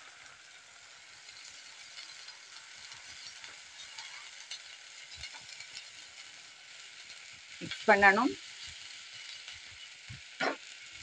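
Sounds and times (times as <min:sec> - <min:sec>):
sauce sizzling in a pan: 0:00.0 - 0:11.0.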